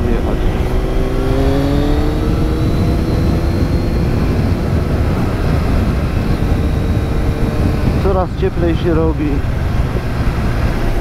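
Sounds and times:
motorcycle engine running: 0.0 - 11.0
wind rush on microphone: 0.0 - 11.0.

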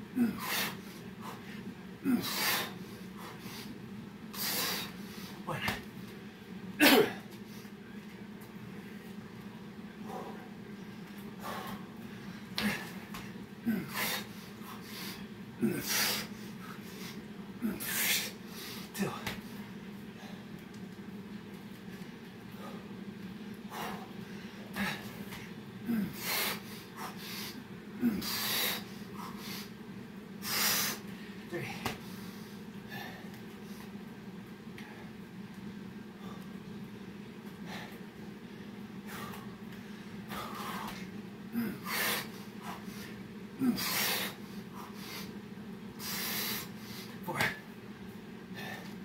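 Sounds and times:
steady low hum: 0.0 - 49.0
man breathing hard: 0.1 - 5.9, 10.0 - 19.5, 22.5 - 23.0, 23.6 - 29.8, 30.4 - 34.0, 37.5 - 47.7, 48.5 - 49.0.

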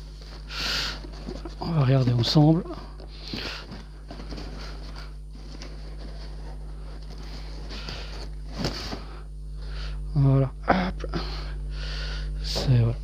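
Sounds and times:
low electrical hum: 0.0 - 13.0
cardboard box lid rustling: 0.2 - 2.6, 3.2 - 9.1.

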